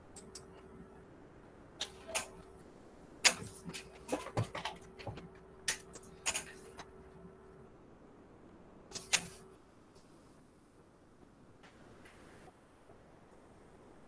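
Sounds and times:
faint electrical hum: 0.0s - 14.0s.

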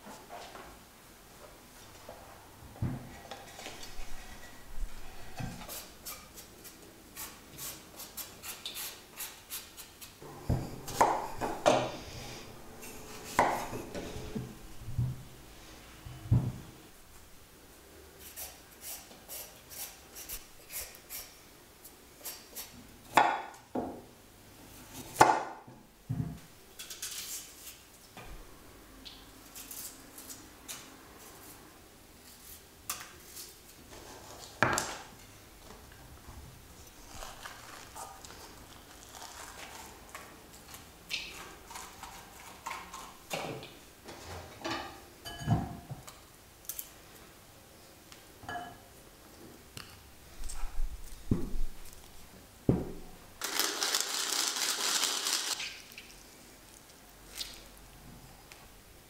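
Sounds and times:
vegetables being peeled: 36.8s - 43.2s, 53.4s - 56.1s.

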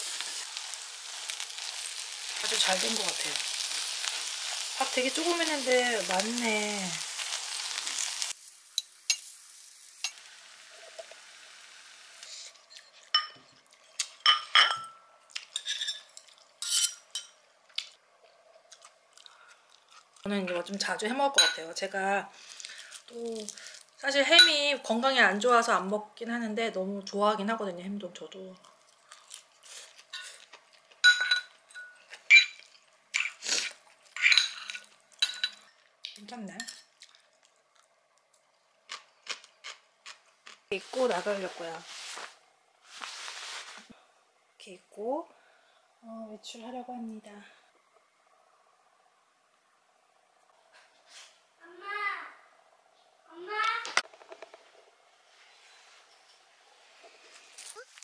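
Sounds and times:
spoon clinking on ceramic bowls: 12.7s - 13.6s, 14.2s - 17.4s, 21.4s - 21.6s, 31.0s - 32.6s, 34.2s - 35.7s
metal spoon clinking on ceramic bowl: 13.1s - 13.4s, 31.0s - 32.6s, 34.2s - 35.6s.

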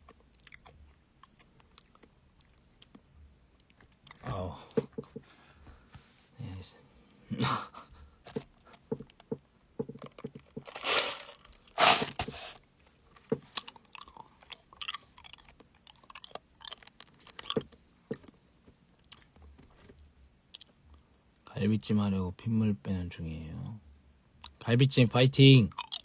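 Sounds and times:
person chewing crunchy food: 0.0s - 3.0s, 10.0s - 18.4s, 19.0s - 20.8s, 25.7s - 26.0s.

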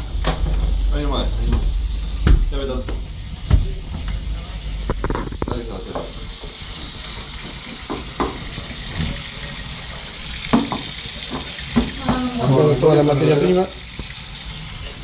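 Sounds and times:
tap running into metal sink: 7.7s - 9.1s, 10.5s - 12.2s.

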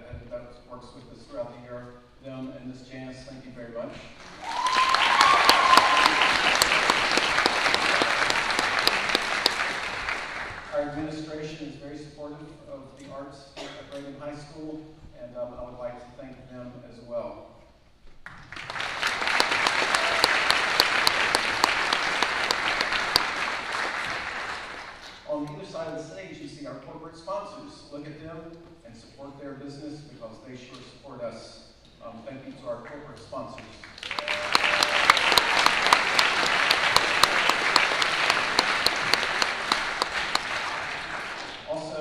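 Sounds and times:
audience applauding: 4.2s - 10.8s, 18.3s - 25.2s, 33.8s - 42.0s.

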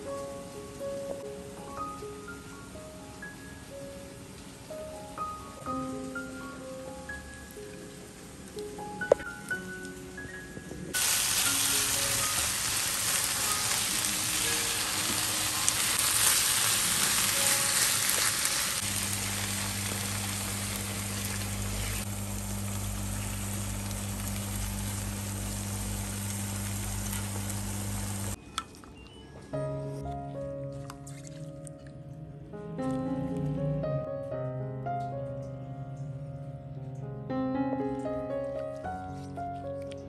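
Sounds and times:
sauce sizzling in a frying pan: 11.0s - 28.4s
steady low hum: 18.8s - 28.4s.

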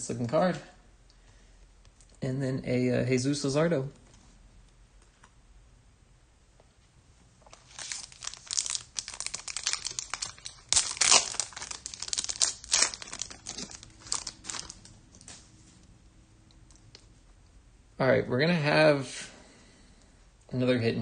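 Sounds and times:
foil wrapper crinkling and ripping: 7.5s - 15.3s.

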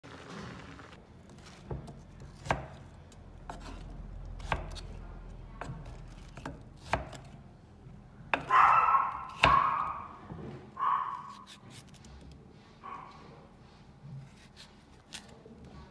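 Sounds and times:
knife cutting through vegetable: 11.1s - 12.2s, 14.1s - 15.5s.

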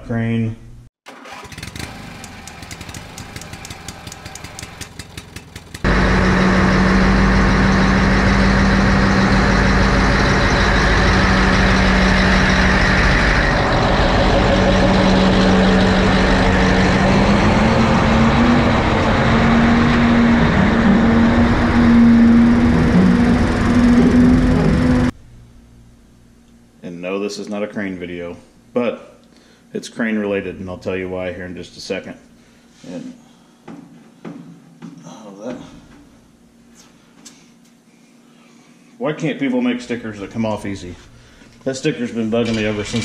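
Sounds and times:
diesel engine cranking: 1.0s - 25.2s, 42.3s - 43.0s
diesel engine running: 1.1s - 25.2s.

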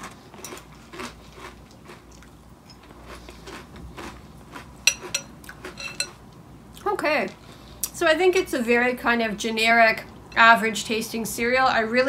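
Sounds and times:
chewing crunchy cereal: 0.0s - 6.2s
metal spoon clinking on bowl: 4.8s - 6.2s.

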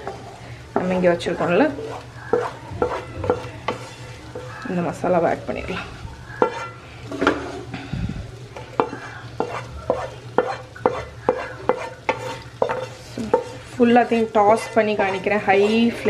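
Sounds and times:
spatula scraping a pan: 0.0s - 4.8s, 5.7s - 7.7s, 8.6s - 16.0s
spatula knocking on metal pans: 0.8s - 4.6s, 6.4s - 7.4s, 8.8s - 16.0s.

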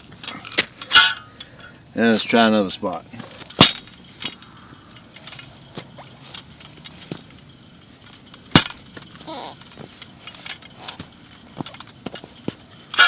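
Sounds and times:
sharp metallic clank: 0.2s - 1.8s, 3.2s - 13.0s.

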